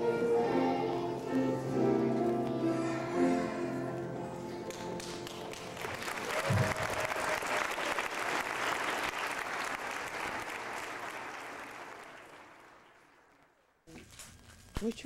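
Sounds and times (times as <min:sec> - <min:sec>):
audience clapping: 0:04.7 - 0:13.8.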